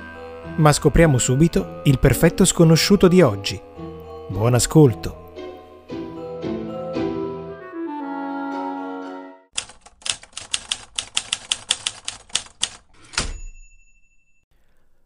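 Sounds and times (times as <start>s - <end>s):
held music chord: 0.0s - 9.5s
typewriter keystrokes: 9.6s - 13.4s
typewriter bell ding: 13.0s - 14.5s.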